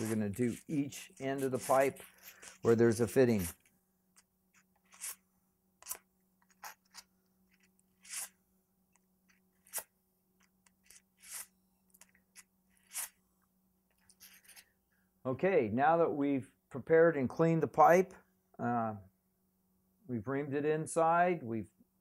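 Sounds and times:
sand cloth scraping copper pipe: 0:00.0 - 0:03.7.

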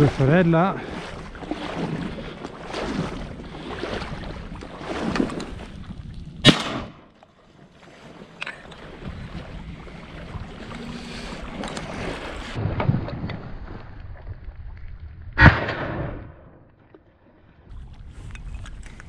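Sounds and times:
wind noise on microphone: 0:00.8 - 0:07.0, 0:08.6 - 0:16.3, 0:17.7 - 0:19.0
shotgun shot: 0:06.4 - 0:07.1, 0:15.4 - 0:16.6.

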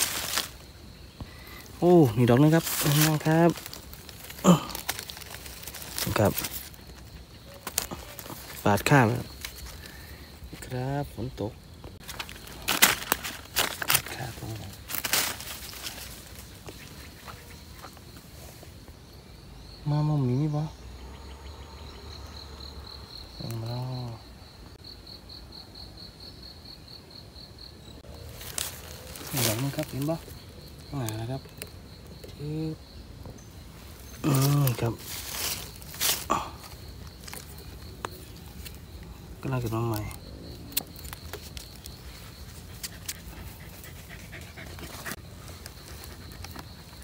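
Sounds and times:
crackles of twigs underfoot: 0:00.0 - 0:19.1, 0:28.0 - 0:47.0
insect chirping: 0:00.0 - 0:47.0
panting breath: 0:42.6 - 0:47.0.

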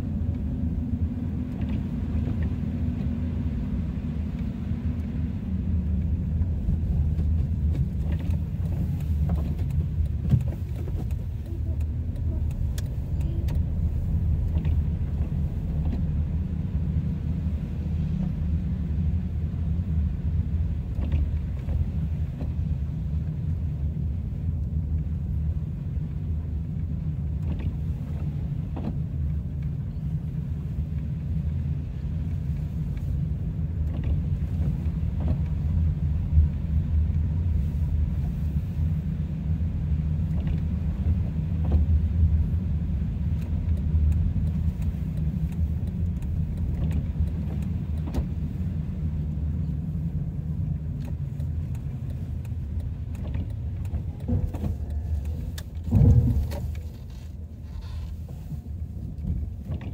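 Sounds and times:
car cabin road noise: 0:00.0 - 0:59.9
faint knocks from road bumps: 0:06.0 - 0:16.2, 0:20.8 - 0:22.7, 0:51.0 - 0:59.9.

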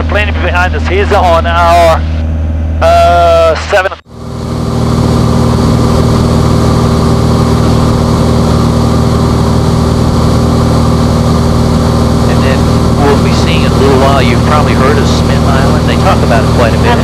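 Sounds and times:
airplane engine drone: 0:00.0 - 0:17.0.

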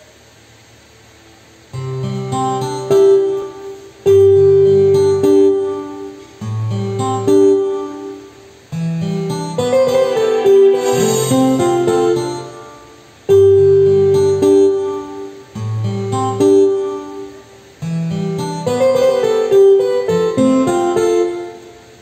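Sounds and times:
backing track with guitar and bass: 0:04.1 - 0:07.8, 0:08.7 - 0:17.1, 0:17.8 - 0:21.6
tenor saxophone melody: 0:09.6 - 0:12.6.

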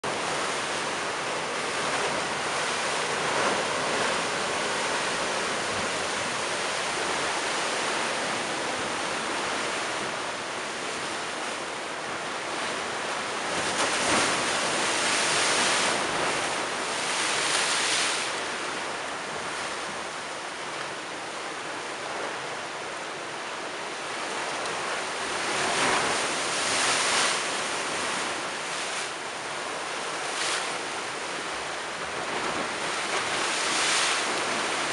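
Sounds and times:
sea waves breaking against stone wall: 0:13.5 - 0:18.1.

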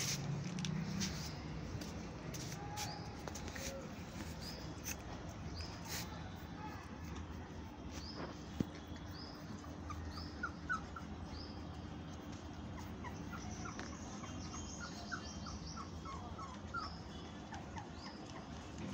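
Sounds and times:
puppies squeaking and whimpering: 0:09.3 - 0:18.8.

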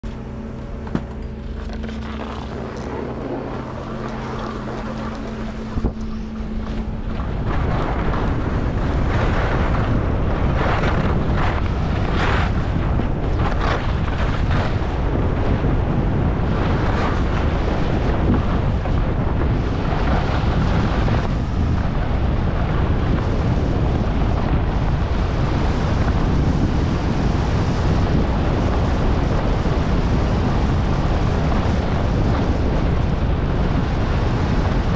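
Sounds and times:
low hum with held tones: 0:00.0 - 0:34.9
wind rushing over microphone: 0:00.0 - 0:34.9
skis scraping on snow: 0:00.9 - 0:15.2.

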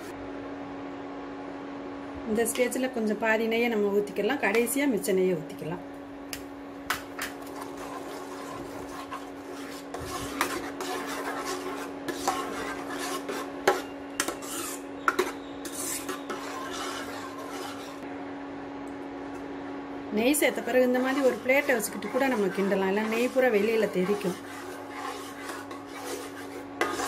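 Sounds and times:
steady hum: 0:00.0 - 0:27.0
ladle scraping thick food in pan: 0:07.0 - 0:18.0, 0:20.4 - 0:27.0.

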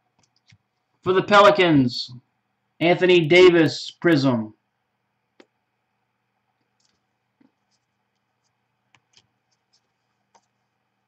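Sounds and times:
trading cards being handled: 0:06.6 - 0:10.8.

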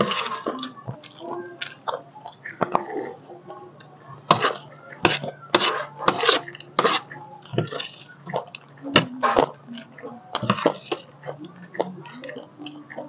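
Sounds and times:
crunchy chewing: 0:03.8 - 0:12.8.

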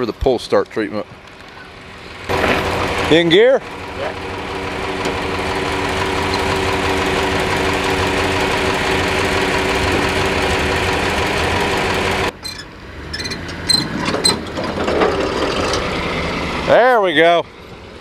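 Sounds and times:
tractor engine turning over: 0:01.3 - 0:16.7.

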